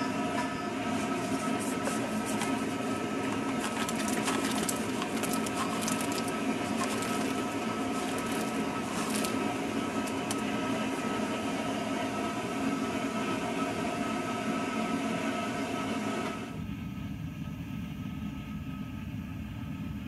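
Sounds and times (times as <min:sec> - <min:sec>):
propane burner running: 0:00.0 - 0:20.0
liquid crackling at a boil: 0:01.1 - 0:11.4.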